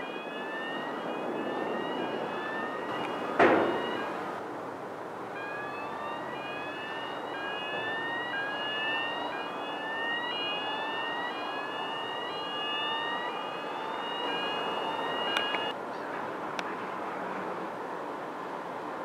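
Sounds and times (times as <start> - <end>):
siren rising whoops: 0.0 - 4.4, 5.2 - 15.8
steady high tone: 0.0 - 4.4, 5.3 - 15.7.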